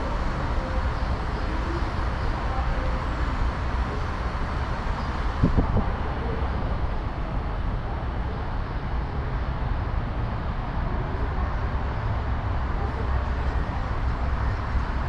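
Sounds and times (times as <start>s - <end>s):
vehicle rumble: 0.0s - 15.0s.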